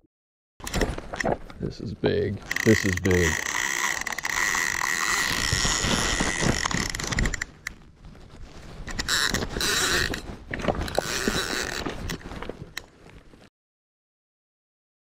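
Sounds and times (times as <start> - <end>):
sleeve rubbing against rod: 2.4 - 12.7
fishing reel clicking and grinding: 2.5 - 7.6, 8.9 - 10.2, 10.8 - 12.2.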